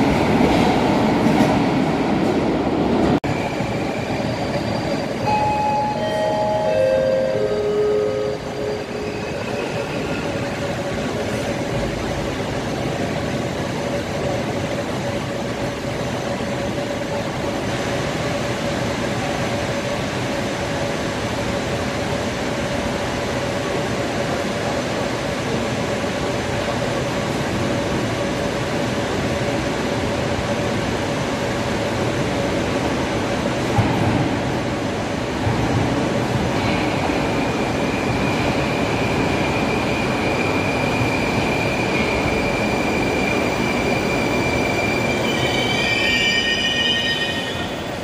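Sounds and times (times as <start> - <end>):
train rumble in tunnel: 0.0 - 48.0
brief tones: 4.0 - 10.3.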